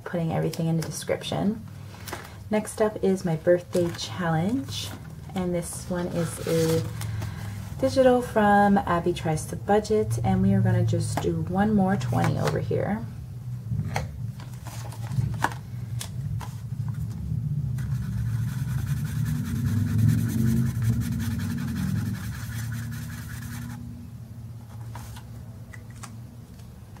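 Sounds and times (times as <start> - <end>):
paper and cash handled: 3.6 - 7.6, 14.4 - 23.8, 24.6 - 27.0
low rumble: 15.9 - 24.3
scratching on paper: 17.8 - 23.8.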